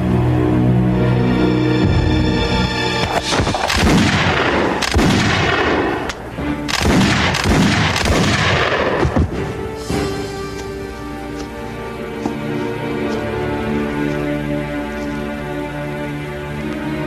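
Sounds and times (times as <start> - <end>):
background music: 0.0 - 17.0
gunshots with echo: 3.2 - 9.7.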